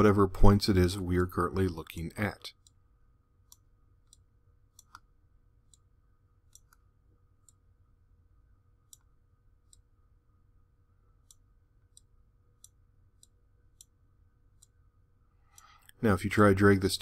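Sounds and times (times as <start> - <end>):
faint computer mouse clicks: 4.8 - 5.1, 6.5 - 6.8.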